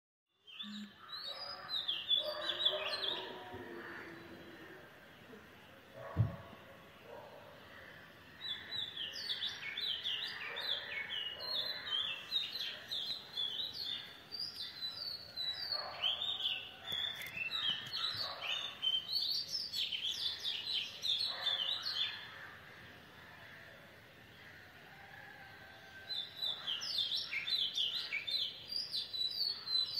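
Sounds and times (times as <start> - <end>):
birds chirping: 0.4 - 22.5
faint background noise: 0.4 - 29.9.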